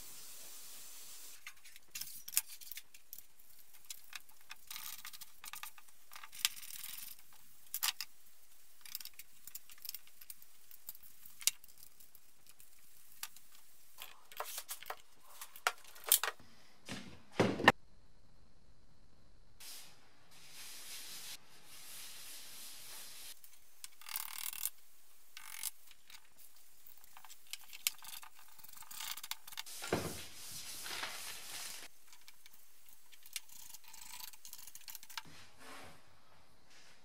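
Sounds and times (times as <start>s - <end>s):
parts clicking and knocking: 1.4s - 16.4s, 23.4s - 29.7s, 31.9s - 35.3s.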